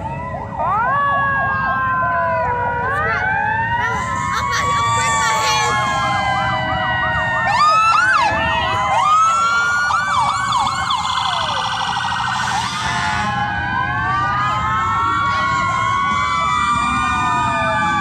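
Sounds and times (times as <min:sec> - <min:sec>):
police sirens wailing and yelping: 0:00.0 - 0:18.0.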